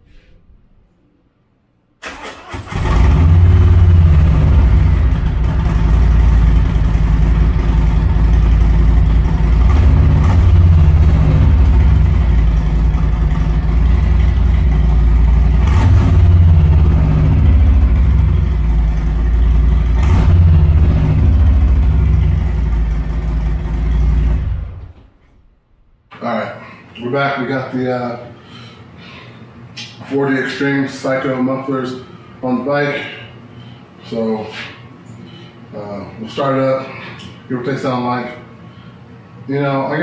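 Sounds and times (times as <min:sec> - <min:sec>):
motorcycle engine idling: 0:03.8 - 0:25.0.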